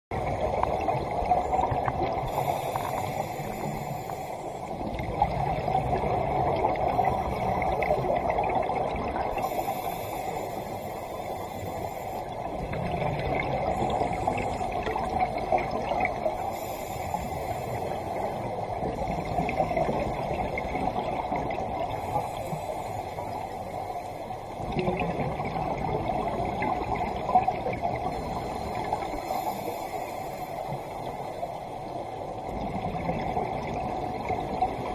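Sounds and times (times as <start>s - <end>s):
bubbling gurgling exhale: 0.2s - 23.4s, 24.6s - 31.3s, 32.4s - 34.9s
regulator breathing hiss: 2.2s - 4.8s, 9.4s - 12.6s, 16.4s - 18.4s, 21.9s - 24.3s, 28.1s - 31.7s.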